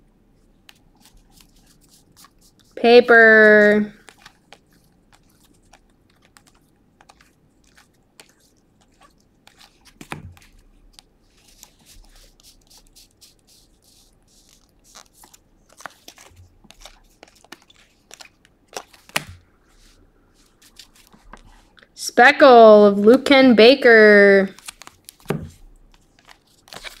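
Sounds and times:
cards tapping: 0:04.0 - 0:11.1, 0:14.6 - 0:19.4, 0:24.6 - 0:27.0
cards clicking and scraping: 0:04.0 - 0:19.4, 0:24.6 - 0:27.0.

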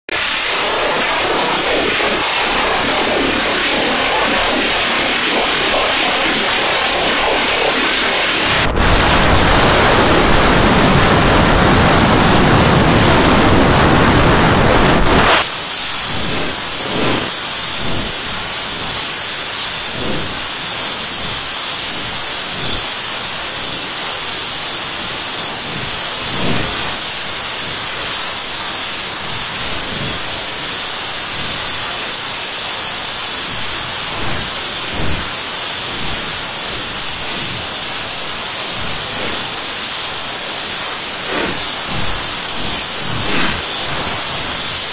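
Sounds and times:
harsh rushing noise: 0:00.0 - 0:44.9
high hiss: 0:00.1 - 0:10.3, 0:15.0 - 0:44.9.

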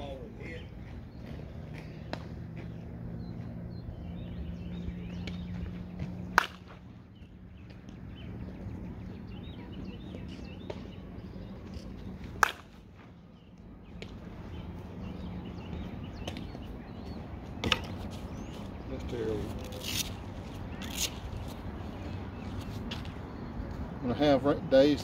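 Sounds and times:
low steady hum: 0:00.0 - 0:25.0
bat cracking against softball: 0:06.0 - 0:06.9, 0:12.2 - 0:13.2.

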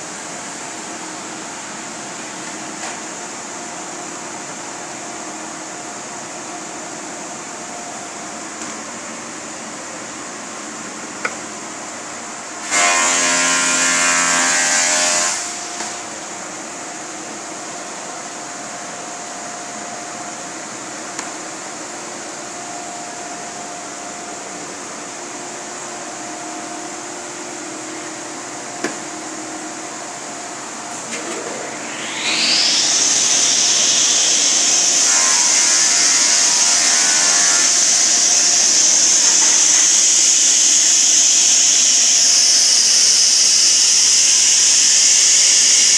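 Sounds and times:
low shop hum: 0:00.0 - 0:45.9
panel saw whine: 0:12.6 - 0:16.2, 0:30.6 - 0:45.9.

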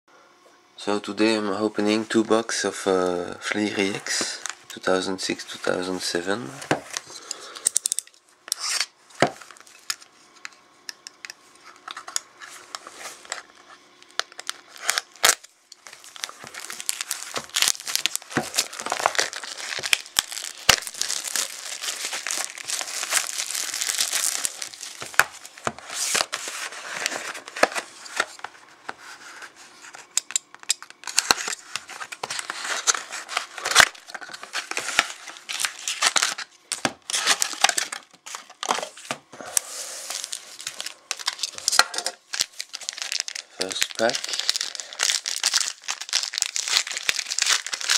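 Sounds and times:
plastic shrink wrap crinkling: 0:11.6 - 0:47.9.

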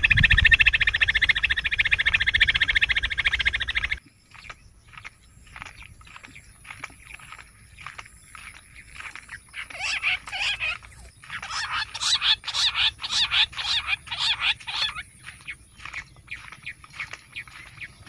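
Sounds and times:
quail calling: 0:00.0 - 0:04.0, 0:09.4 - 0:18.0.

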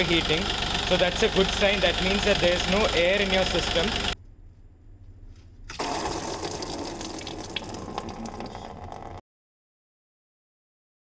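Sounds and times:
coolant trickling from drain: 0:05.7 - 0:09.2.

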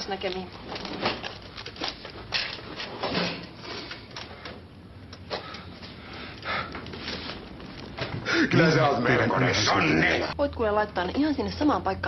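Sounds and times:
rustling handling noise: 0:00.0 - 0:08.2.

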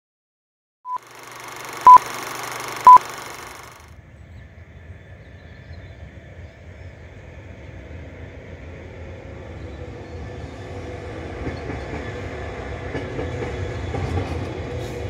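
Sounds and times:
high electronic beeps: 0:00.9 - 0:03.8.

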